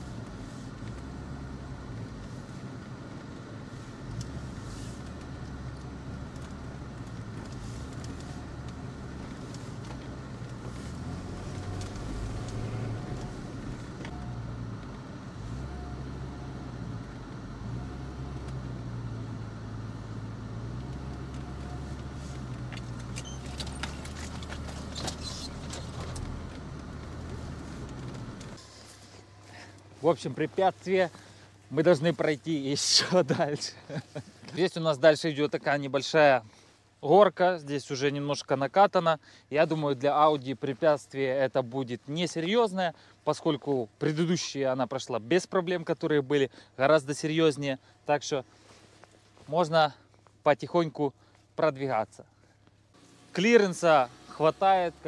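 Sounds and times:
car engine under load: 0:00.0 - 0:31.8, 0:52.2 - 0:55.0
clicks and crackles: 0:05.0 - 0:14.2, 0:20.8 - 0:28.6.

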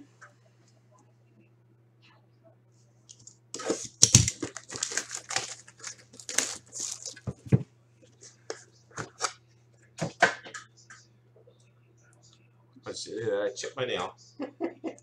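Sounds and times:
plastic wrap tearing and crinkling: 0:03.2 - 0:07.4.

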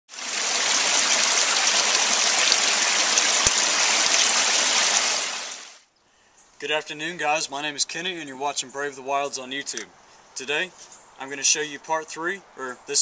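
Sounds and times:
waterfall rushing: 0:00.1 - 0:05.8.

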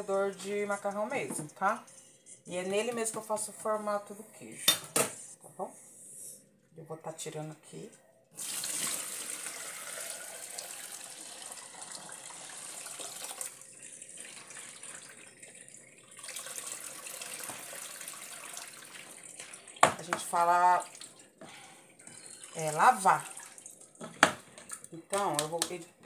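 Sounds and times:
liquid pouring into colander: 0:08.4 - 0:19.7, 0:22.1 - 0:23.8.

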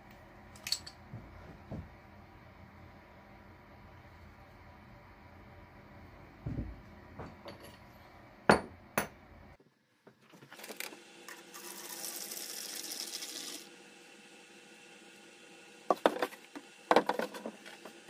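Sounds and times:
hard objects knocking on workbench: 0:08.5 - 0:09.2.

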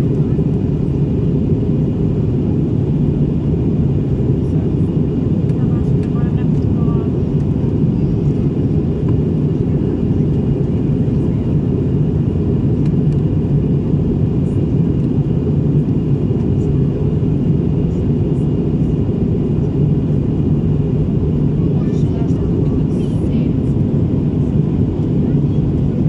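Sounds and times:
airplane engines droning: 0:00.0 - 0:26.0.

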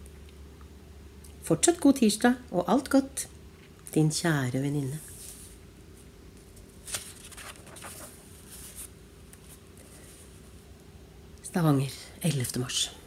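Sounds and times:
book pages rustling: 0:05.0 - 0:10.4.

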